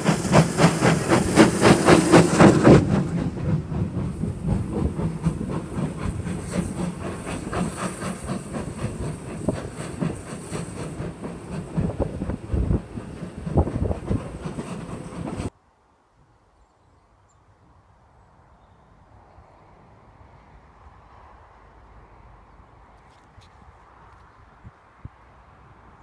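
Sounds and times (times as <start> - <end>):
steam locomotive exhaust beats: 0.0 - 15.5.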